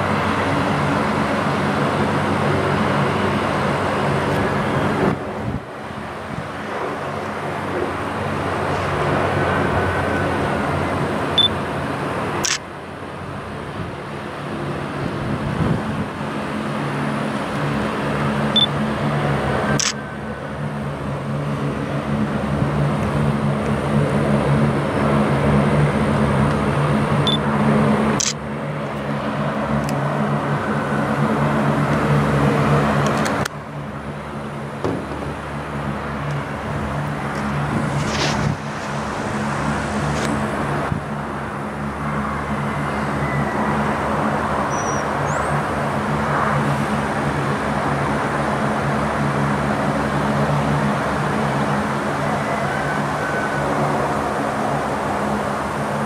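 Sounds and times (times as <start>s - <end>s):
low engine drone: 0.0s - 56.0s
short clicks: 12.4s - 12.6s
noisy hiss: 37.2s - 40.9s.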